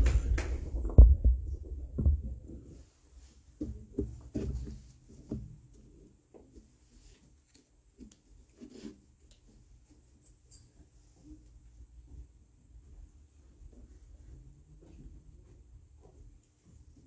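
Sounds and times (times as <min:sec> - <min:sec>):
soft low thumps: 0:00.0 - 0:02.7.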